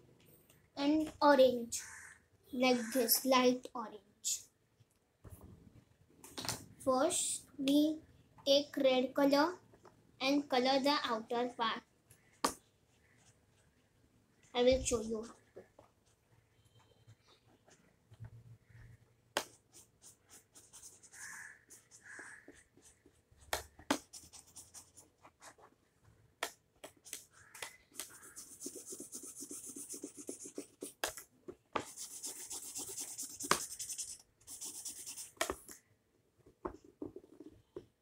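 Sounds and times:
felt-tip pen scratching on paper: 19.4 - 25.8, 26.8 - 31.0, 31.8 - 35.5.

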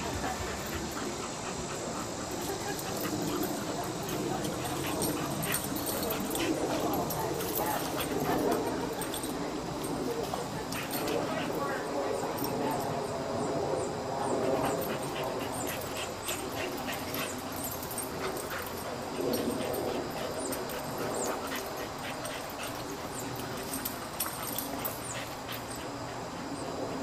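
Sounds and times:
dogs making noises: 0.0 - 27.0.

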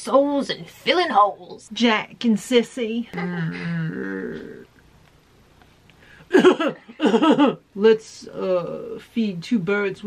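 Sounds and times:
person holding long vocal sound: 3.2 - 4.7.

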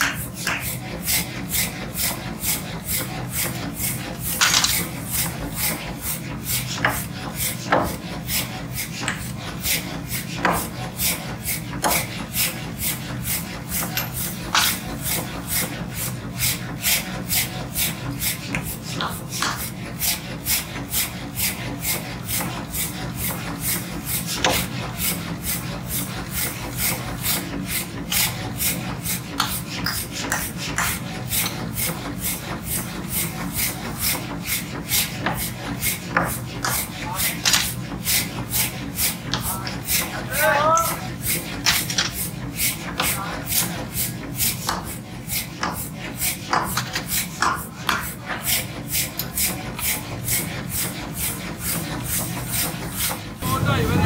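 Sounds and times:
rasp scraping steel: 0.0 - 40.2, 40.9 - 53.4
hand tool scraping metal: 0.4 - 16.1
low machine hum: 53.4 - 54.0.

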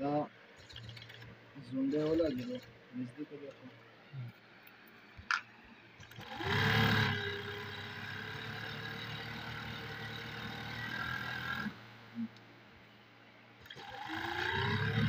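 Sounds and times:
sewing machine stitching: 0.6 - 1.3, 6.0 - 11.7, 13.6 - 15.0.

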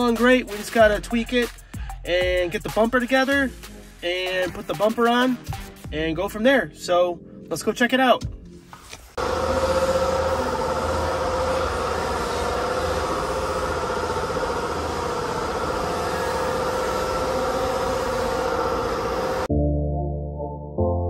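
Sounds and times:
machine droning steadily: 9.2 - 19.5.

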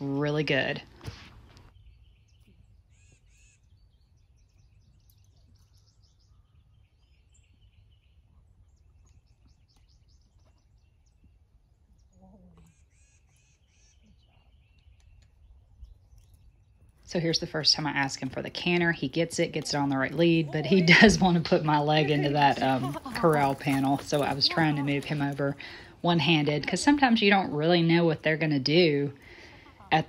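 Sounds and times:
faint birds chirping: 0.0 - 30.0.

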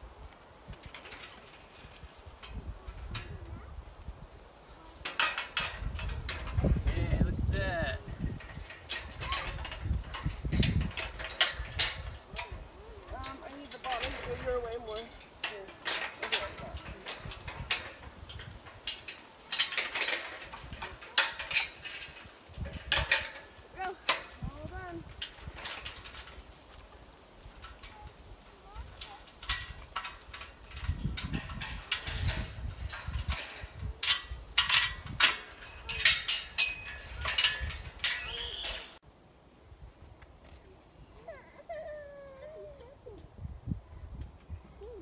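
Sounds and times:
chain rattling: 4.9 - 39.0
steel panels clanking: 4.9 - 39.0.

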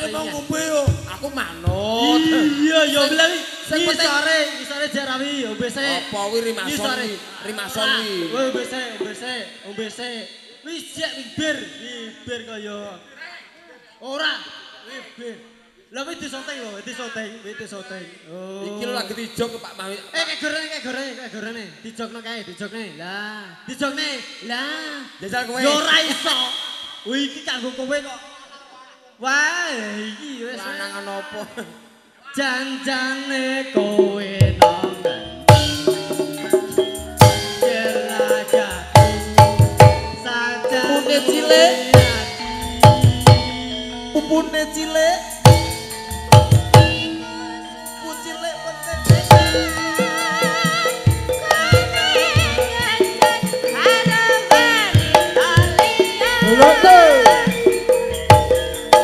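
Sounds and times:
person singing: 0.0 - 3.4, 33.7 - 59.0
gamelan music: 0.0 - 4.7, 33.9 - 59.0
ringing metal percussion tones: 0.0 - 12.4, 33.8 - 59.0.

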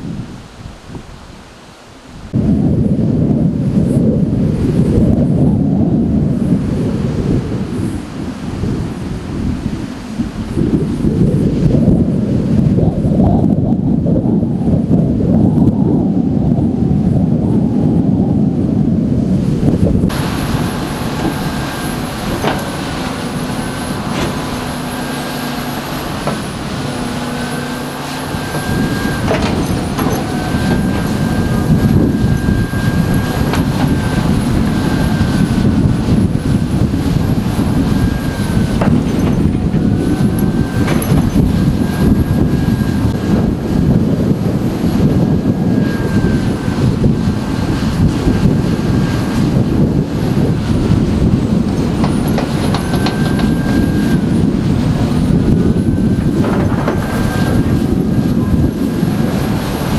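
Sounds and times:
high wavering whine: 1.6 - 59.9
excavator diesel engine running: 20.1 - 59.9
metal clanks: 28.6 - 31.3, 38.8 - 41.5.

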